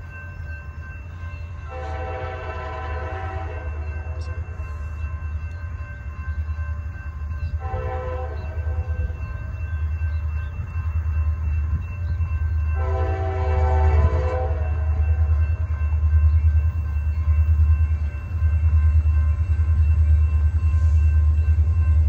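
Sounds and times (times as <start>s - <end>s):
low locomotive rumble: 0.0s - 22.0s
distant locomotive air horn: 1.6s - 4.4s, 7.6s - 9.1s, 12.8s - 15.2s.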